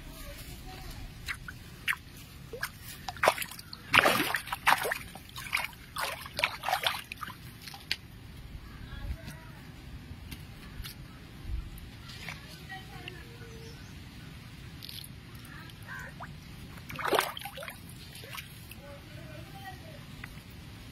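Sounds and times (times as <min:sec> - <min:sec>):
fish splashing at water surface: 0:01.3 - 0:08.0, 0:15.8 - 0:18.7.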